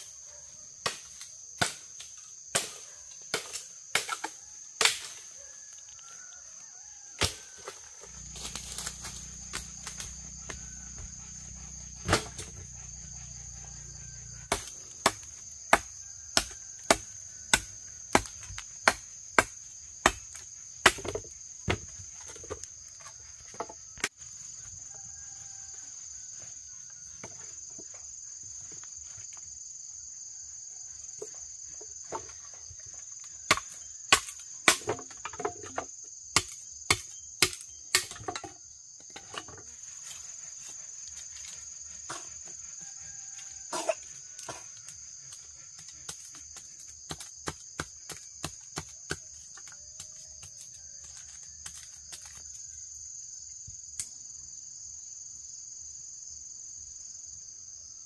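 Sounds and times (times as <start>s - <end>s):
insects droning: 0.0s - 58.0s
sharp chopping strikes: 12.0s - 12.7s, 14.5s - 21.8s, 36.4s - 38.2s.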